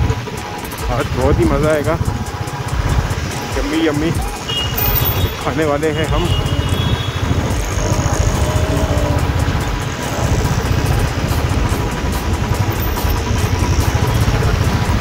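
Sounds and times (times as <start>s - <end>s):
motorcycle engine running: 0.0s - 15.0s
wind on microphone: 6.2s - 15.0s.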